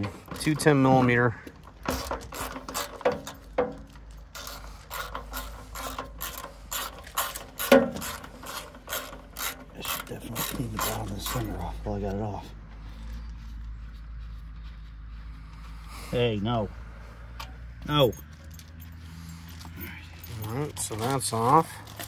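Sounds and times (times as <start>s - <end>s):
ratchet wrench clicking: 1.9s - 11.6s.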